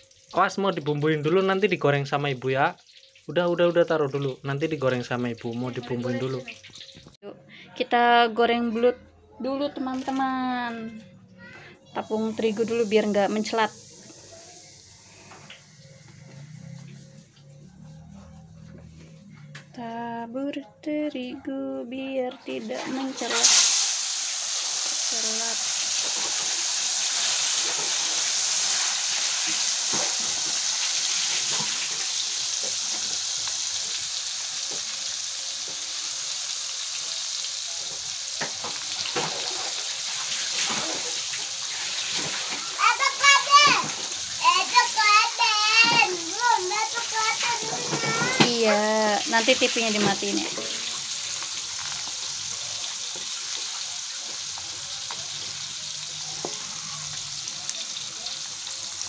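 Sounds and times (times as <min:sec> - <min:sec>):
fish frying in hot oil: 0:00.0 - 0:07.2, 0:12.0 - 0:17.1, 0:22.6 - 0:59.0
oil popping and crackling: 0:00.0 - 0:07.2, 0:22.8 - 0:59.0.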